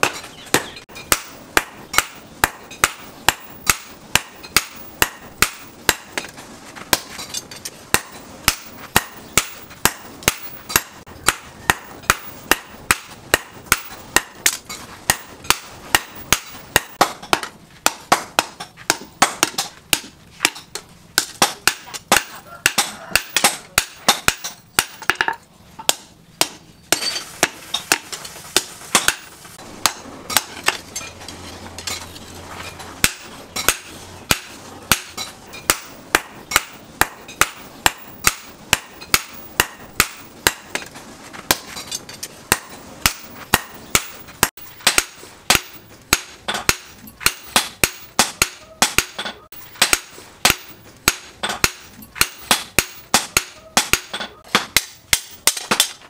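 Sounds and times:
hammer striking hot steel on anvil: 0.0s - 40.9s, 41.5s - 56.0s.

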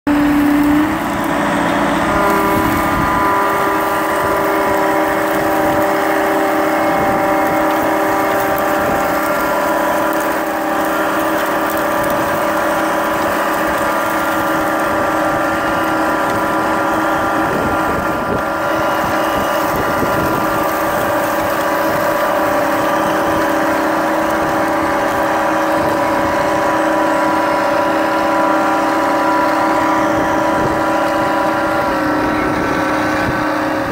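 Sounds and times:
tracked vehicle engine drone: 0.0s - 33.9s.

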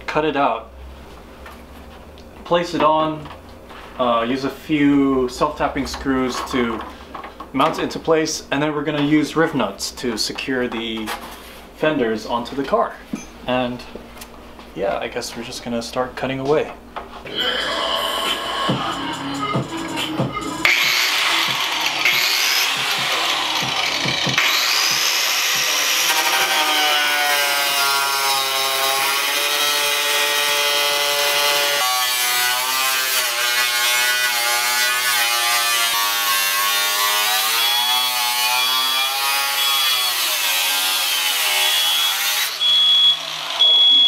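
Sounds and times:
cut-off wheel cutting sheet metal: 20.0s - 43.7s.

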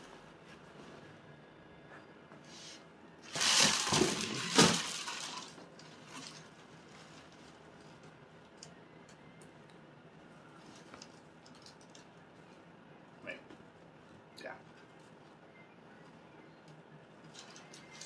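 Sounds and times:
packaging crinkling and rustling: 3.2s - 7.6s.

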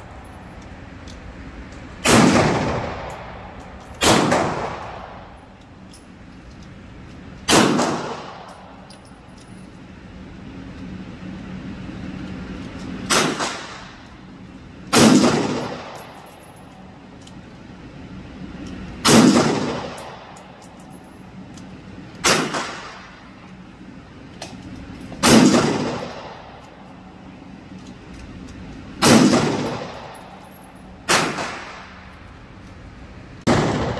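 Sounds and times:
low hum: 0.0s - 7.5s, 13.9s - 22.2s
rifle shots reverberating indoors: 2.0s - 3.2s, 4.0s - 5.2s, 7.5s - 8.4s, 14.9s - 16.0s, 22.2s - 23.0s, 25.2s - 26.4s, 29.0s - 30.1s, 31.1s - 32.0s, 33.4s - 33.9s.

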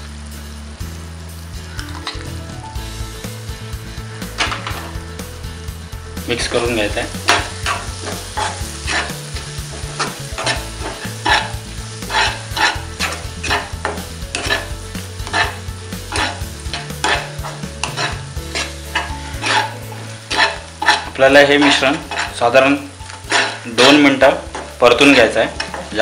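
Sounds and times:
masala sizzling: 0.0s - 26.0s
spatula scraping a pan: 4.3s - 5.0s, 6.5s - 26.0s.

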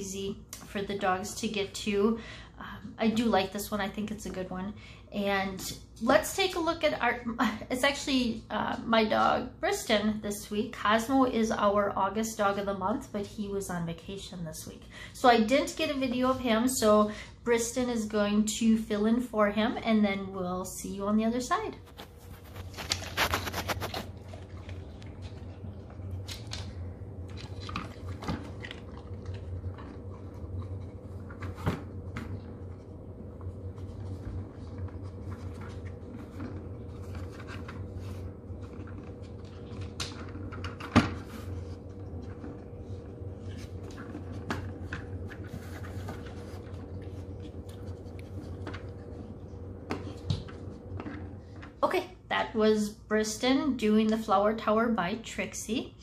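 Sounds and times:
steady hum: 12.4s - 56.0s.

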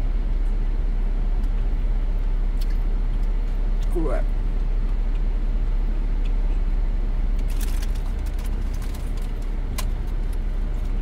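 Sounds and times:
car engine idling: 6.8s - 11.0s
chip bag crinkling: 7.4s - 11.0s.

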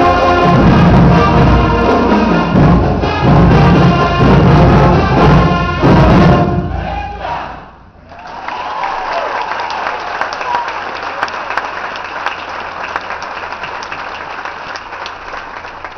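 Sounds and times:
concert band chord: 0.0s - 6.8s
audience applause: 8.1s - 15.9s.

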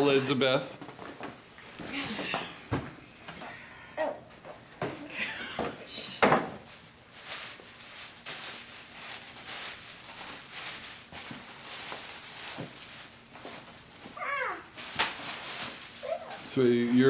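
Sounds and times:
tissue paper rustling: 6.6s - 17.0s.

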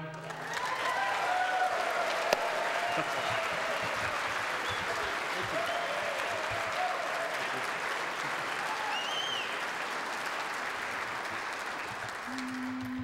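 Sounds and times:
audience applauding: 0.0s - 13.0s
whistle from crowd: 4.6s - 6.2s, 8.7s - 9.6s.

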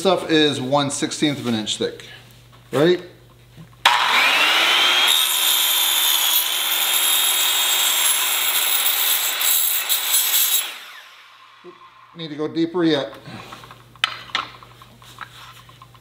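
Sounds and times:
circular saw cutting steel: 3.9s - 12.4s.

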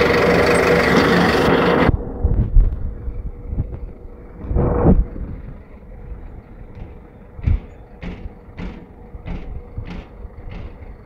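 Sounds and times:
truck engine rumble: 0.0s - 11.0s
footsteps on steel deck: 6.6s - 11.0s.

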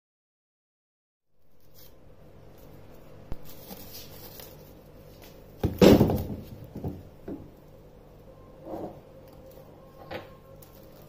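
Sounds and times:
kitchen things thumping and rattling: 5.6s - 7.5s.

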